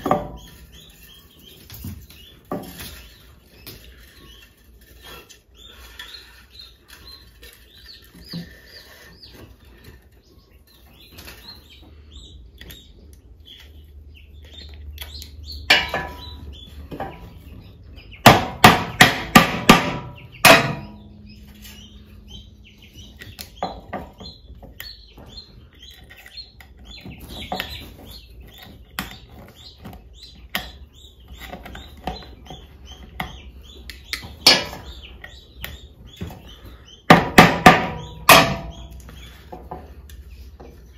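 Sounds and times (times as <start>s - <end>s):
hammer striking wooden frame: 18.2s - 21.1s, 37.1s - 39.0s.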